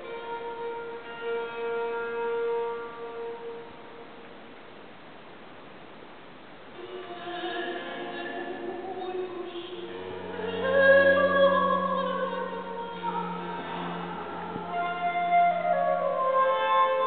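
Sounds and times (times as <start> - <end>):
chamber ensemble sustained notes: 6.8 - 17.0.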